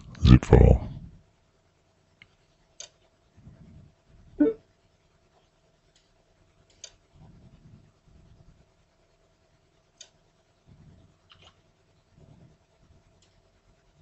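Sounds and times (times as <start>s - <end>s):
faint hum: 0.0s - 14.0s
computer mouse clicks: 2.2s - 3.1s, 5.9s - 7.0s, 11.3s - 11.6s.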